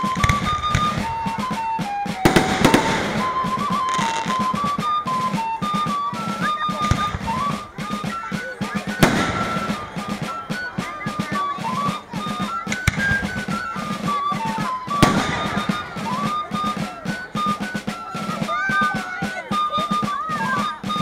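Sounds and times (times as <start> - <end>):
steady drum beat: 0.0 - 21.0
stepping melody: 0.0 - 21.0.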